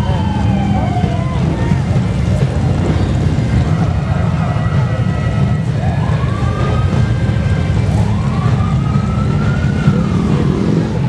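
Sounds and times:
motorcycle engines rumbling: 0.0 - 11.0
siren wailing: 0.0 - 11.0.

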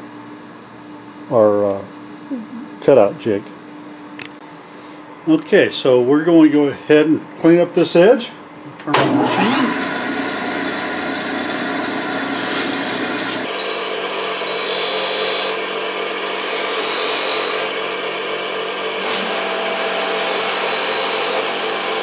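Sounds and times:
bench grinder grinding metal: 9.1 - 22.0.

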